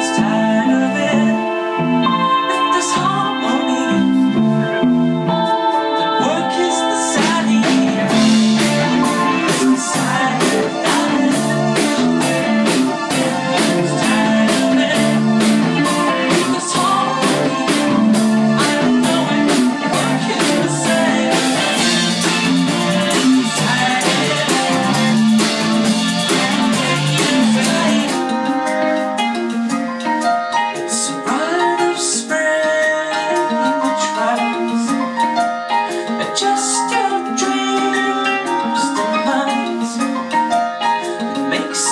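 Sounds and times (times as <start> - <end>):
bass guitar: 0.0 - 41.9
electric guitar: 0.0 - 41.9
keyboards: 0.0 - 41.9
steady drum beat: 6.2 - 29.9.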